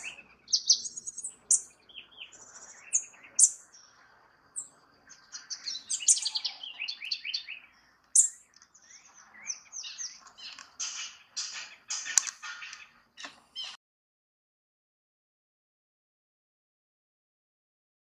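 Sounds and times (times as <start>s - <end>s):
bird singing trills: 0.0s - 13.8s.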